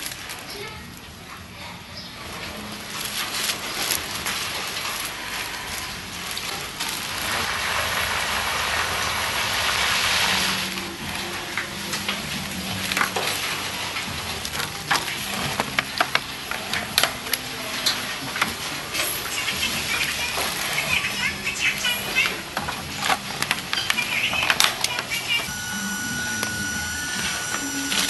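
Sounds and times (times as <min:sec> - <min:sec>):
cooking hiss: 0:03.6 - 0:24.2.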